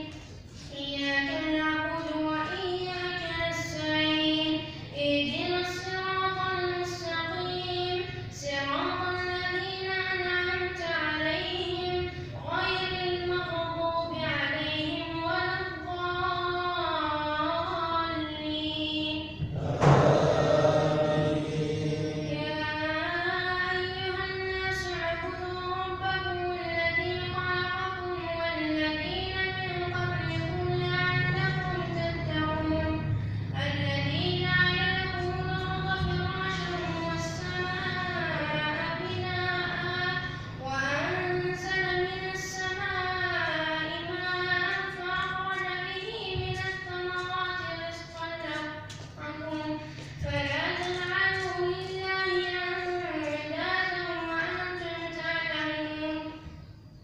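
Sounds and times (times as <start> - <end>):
boy reciting melodically: 0.0 - 57.0
loud rush of noise: 19.4 - 22.8.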